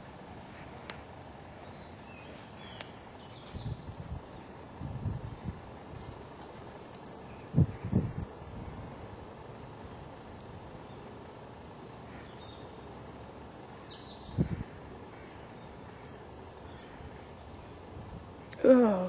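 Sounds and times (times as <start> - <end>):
faint bird chirps: 12.0 - 19.0.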